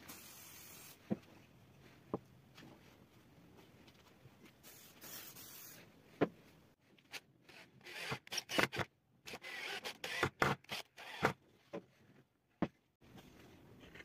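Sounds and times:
cordless drill driving screws: 0:07.5 - 0:11.4.

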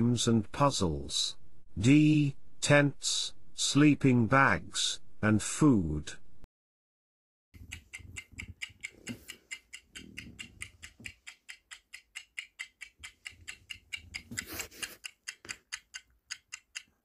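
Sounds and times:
rapid clock ticking: 0:07.6 - 0:17.0.

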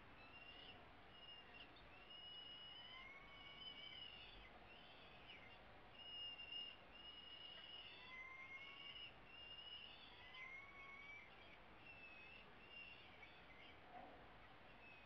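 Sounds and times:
steady background hiss: 0:00.0 - 0:15.0
falcon chicks begging calls: 0:00.1 - 0:13.8.

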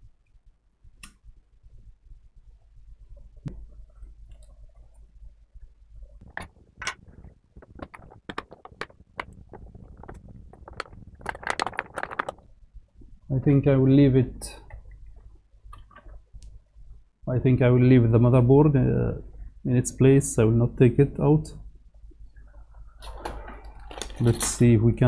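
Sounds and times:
knocks and rattles on metal case: 0:06.2 - 0:12.4.

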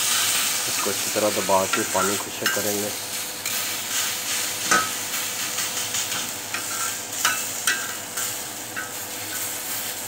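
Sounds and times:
kebabs sizzling on a griddle: 0:00.0 - 0:10.0
metal tongs clinking: 0:01.7 - 0:02.8, 0:06.5 - 0:09.4.

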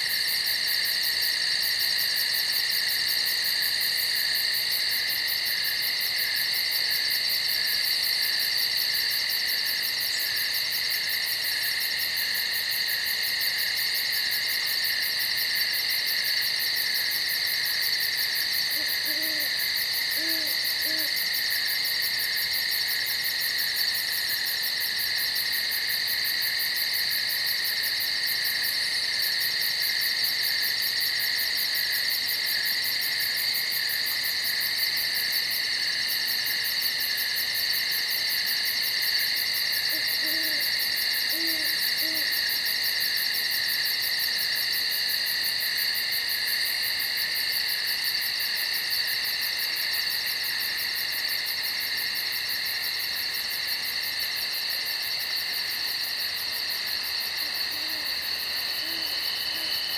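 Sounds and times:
insects trilling: 0:00.0 - 0:59.9
faint owl hoots: 0:18.7 - 0:21.3, 0:39.9 - 0:42.4, 0:57.4 - 0:59.9.

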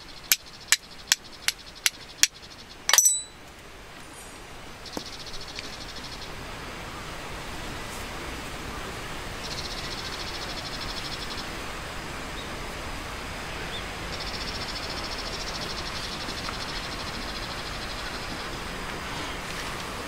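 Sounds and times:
insect chirring trill: 0:00.0 - 0:03.2
outdoor noise haze: 0:00.0 - 0:20.0.

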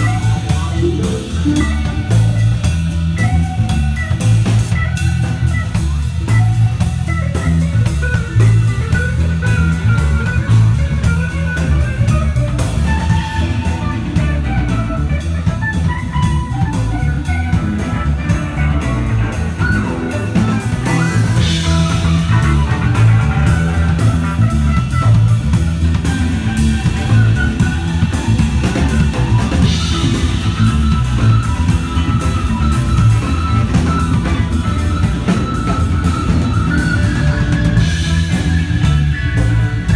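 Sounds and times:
rock band playing live: 0:00.0 - 0:39.9.

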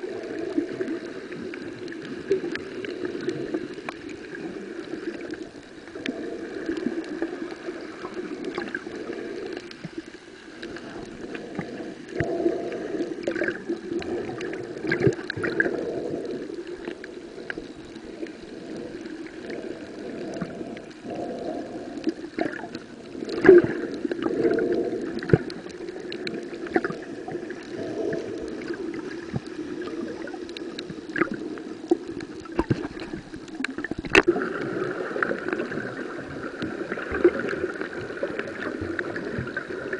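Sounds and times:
underwater rushing of water: 0:00.0 - 0:39.9
sharp underwater clicks: 0:13.2 - 0:34.4.

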